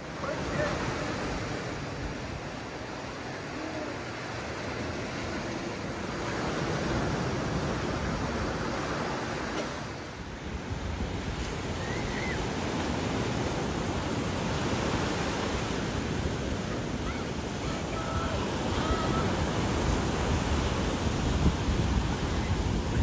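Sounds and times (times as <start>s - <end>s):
ocean surf breaking: 0.0s - 23.0s.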